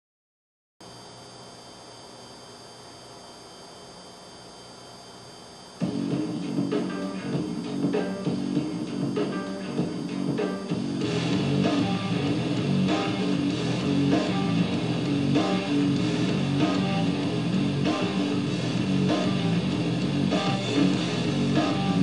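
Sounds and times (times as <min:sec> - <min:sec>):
strummed guitar music: 0:05.8 - 0:22.0.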